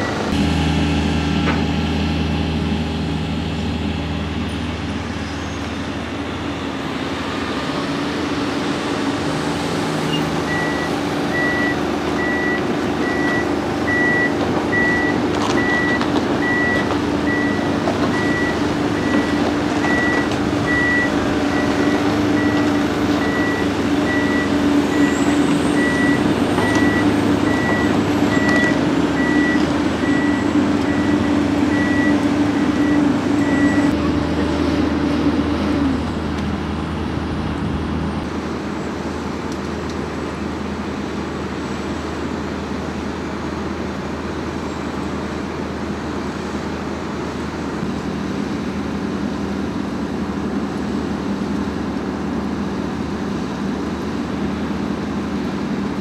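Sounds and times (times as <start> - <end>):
excavator diesel engine running: 0.0 - 56.0
high-pitched warning alarm beeping: 10.1 - 34.0.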